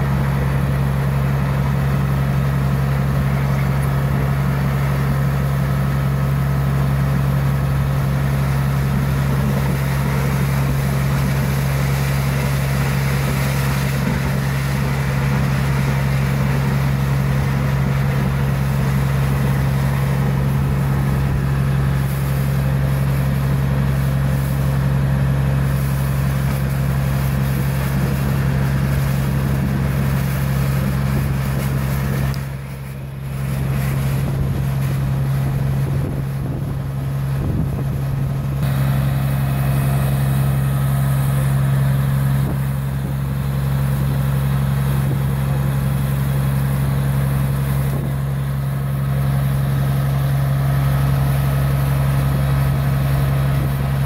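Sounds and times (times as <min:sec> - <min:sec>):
drilling rig engine drone: 0:00.0 - 0:54.0.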